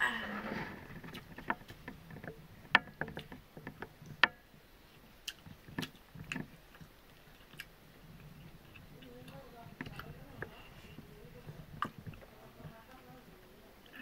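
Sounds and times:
mouth sounds of eating: 0:05.0 - 0:14.0.

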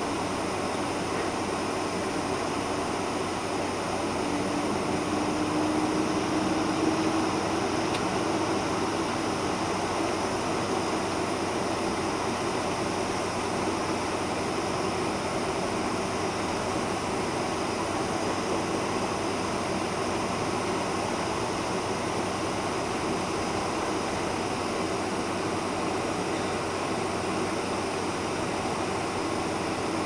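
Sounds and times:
jet engines at low thrust: 0:00.0 - 0:30.0.

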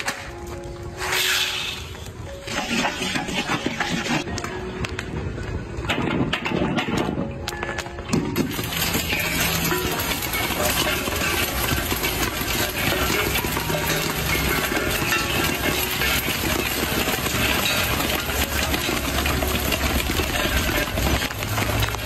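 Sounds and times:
corn popping in a covered wok: 0:05.8 - 0:22.0.

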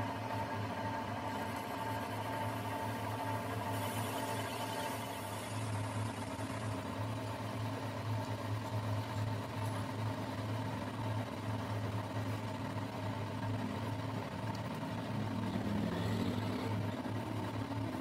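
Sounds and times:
metal lathe running: 0:00.0 - 0:14.1.

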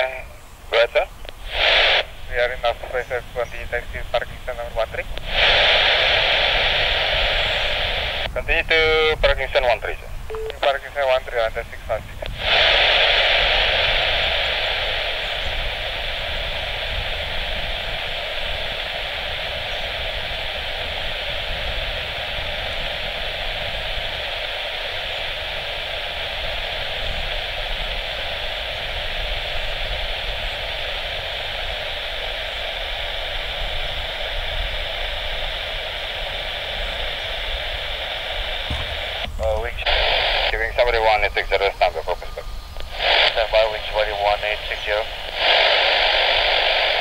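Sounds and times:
radio static hiss: 0:00.0 - 0:47.0
faint low rumble: 0:33.2 - 0:47.0.

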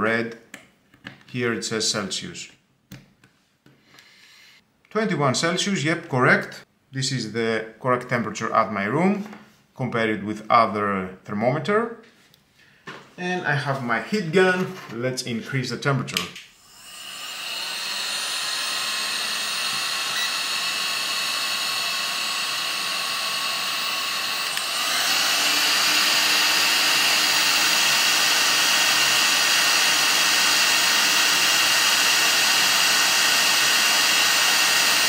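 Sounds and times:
heat gun fan blowing: 0:16.6 - 0:35.0.

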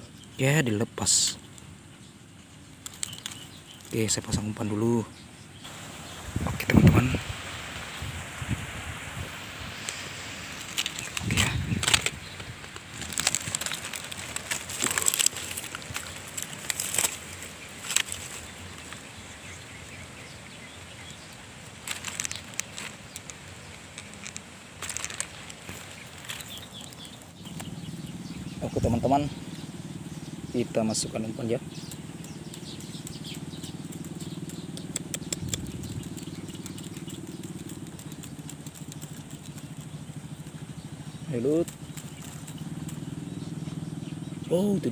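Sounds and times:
faint outdoor hiss: 0:00.0 - 0:44.9
dry leaves rustling: 0:02.3 - 0:05.0, 0:05.6 - 0:44.9
small engine running: 0:31.6 - 0:44.9
faint clicks: 0:31.7 - 0:40.5.

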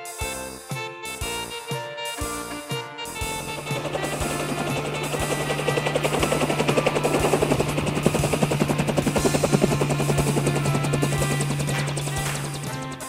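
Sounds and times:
helicopter rotor chopping: 0:03.0 - 0:13.0.

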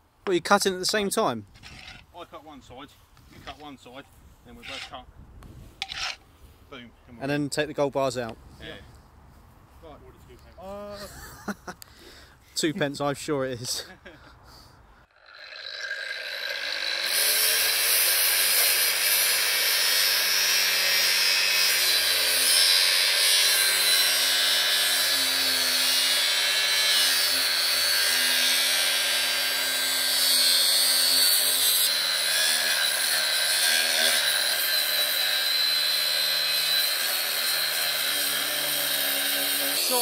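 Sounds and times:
angle grinder cutting steel: 0:15.1 - 0:40.0.

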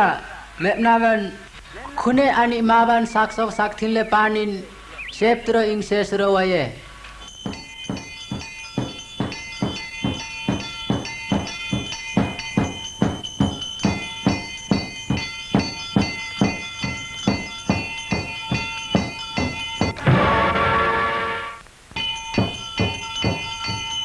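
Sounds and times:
bright metallic ringing: 0:07.2 - 0:21.1, 0:22.0 - 0:24.0
drumbeats: 0:07.3 - 0:20.7, 0:22.0 - 0:24.0.

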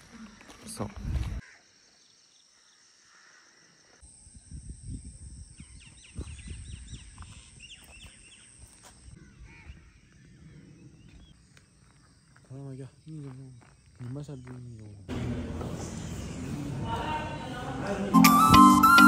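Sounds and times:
birds chirping: 0:05.6 - 0:17.4.

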